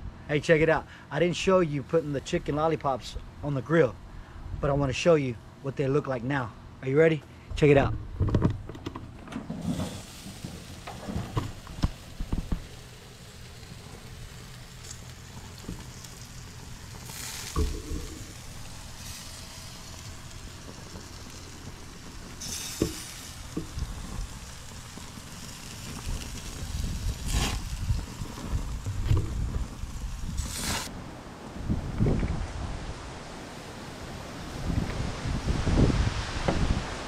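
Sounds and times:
bumps with bursts of hiss: 9.4 - 30.9
meat sizzling on grill: 9.6 - 30.9.

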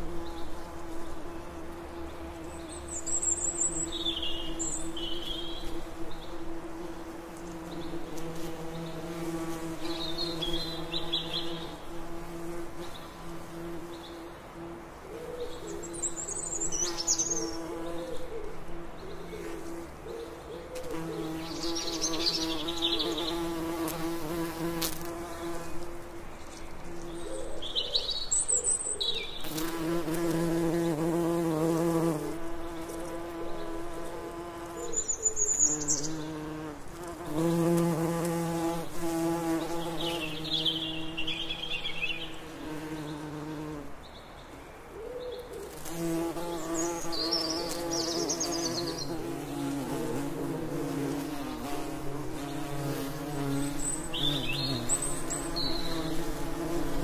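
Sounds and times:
songbirds singing: 0.0 - 6.6, 7.3 - 57.0
bees buzzing: 0.0 - 14.8, 20.8 - 26.2, 29.4 - 34.8, 35.6 - 44.0, 45.6 - 57.0.

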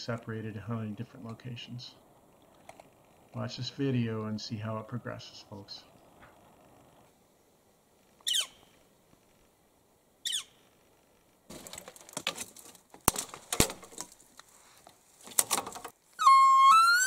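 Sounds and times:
falling bird calls: 8.1 - 8.9, 10.2 - 10.8
rustling: 10.5 - 16.3.

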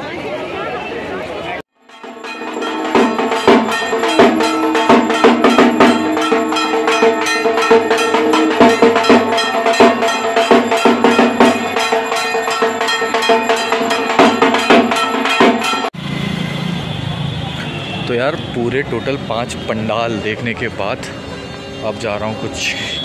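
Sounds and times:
drum beaten with sticks: 1.8 - 15.9
brass gong struck: 1.9 - 15.9.

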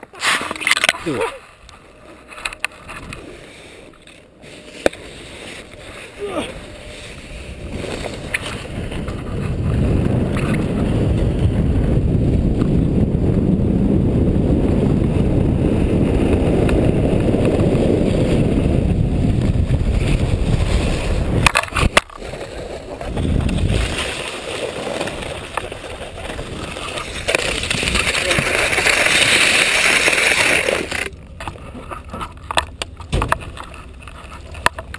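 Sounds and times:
skis sliding over snow: 0.0 - 32.4
wind rushing over microphone: 5.6 - 30.6.

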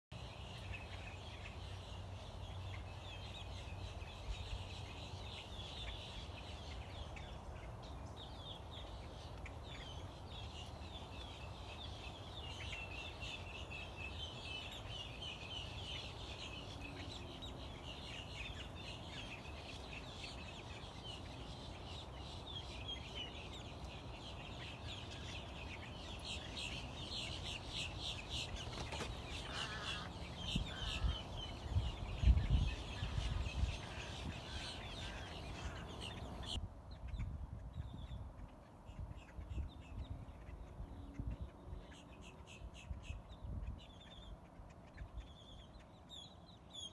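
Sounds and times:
flock of birds chattering: 0.2 - 46.9.

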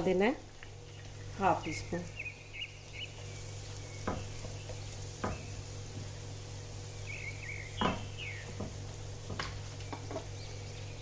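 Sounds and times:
onion sizzling in a pan: 0.0 - 11.0
utensil knocking against pan: 4.0 - 5.5, 7.8 - 10.3.

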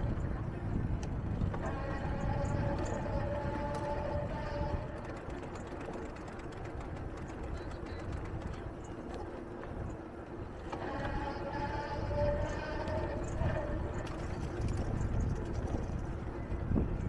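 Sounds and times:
steady pitched whine: 10.3 - 17.0.

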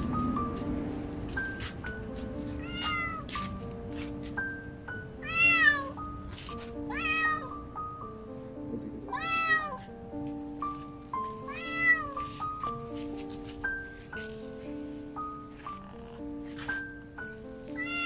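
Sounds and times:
background music with held notes: 0.0 - 18.0
kitten meowing in distress: 2.6 - 3.2, 5.2 - 6.0, 6.9 - 7.6, 9.1 - 9.8, 11.5 - 12.2, 17.8 - 18.0.

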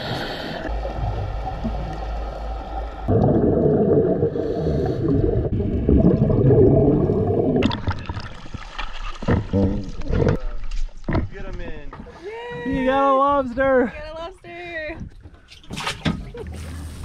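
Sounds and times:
underwater bubbles rumbling: 0.6 - 11.3.

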